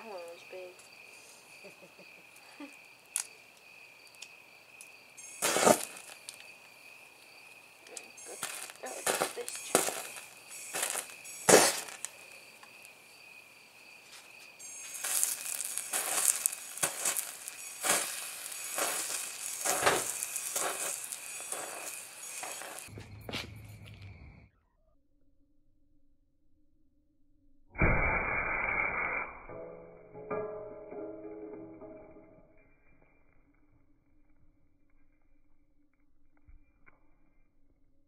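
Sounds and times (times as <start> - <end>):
crickets chirping: 0.0 - 24.9
burning metal crackling and popping: 2.4 - 13.0, 14.5 - 23.0, 29.5 - 33.6.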